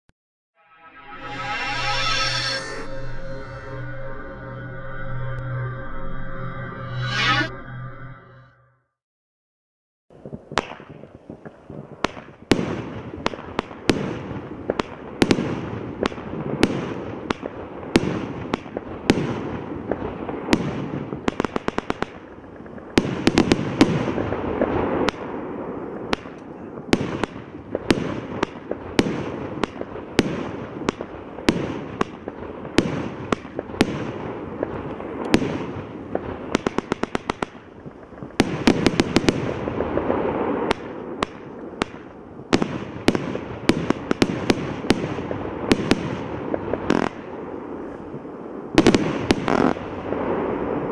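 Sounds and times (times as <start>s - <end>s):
firework bursting reports: 0.6s - 8.5s.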